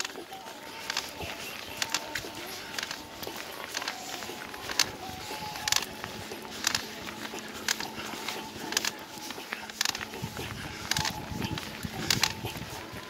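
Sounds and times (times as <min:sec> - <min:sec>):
cyclist breathing heavily: 0:00.0 - 0:13.0.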